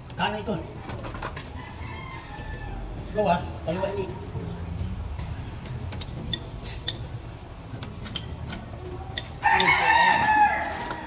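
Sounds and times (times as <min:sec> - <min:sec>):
rooster crowing: 0:01.6 - 0:03.1, 0:09.4 - 0:11.0.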